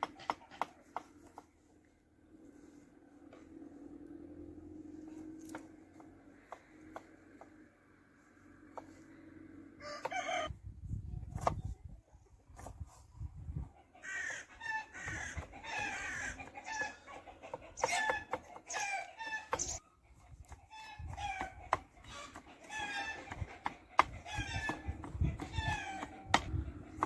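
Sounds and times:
chickens clucking: 0.0 - 1.4, 12.1 - 27.0.

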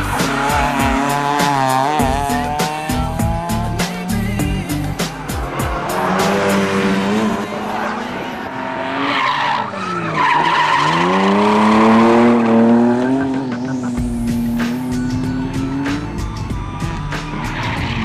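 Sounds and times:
car engine revving hard: 0.0 - 3.8, 5.5 - 9.1, 10.1 - 16.0.

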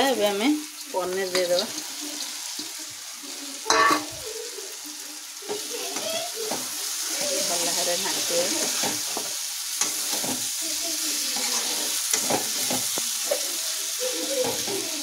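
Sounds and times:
food sizzling in pan: 0.0 - 15.0
metal spatula scraping pan: 3.7 - 4.1, 6.5 - 10.5, 11.2 - 13.4.

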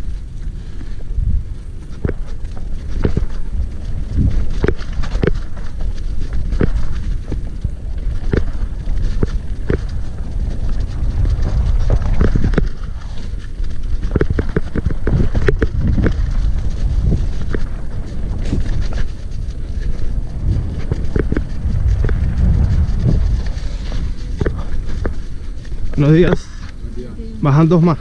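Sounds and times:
bike knocking and rattling: 0.0 - 26.9
wind rumbling on microphone: 0.0 - 28.0.

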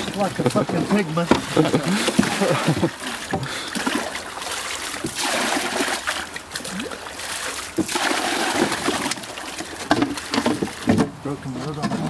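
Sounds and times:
water poured splashing: 0.0 - 11.0.

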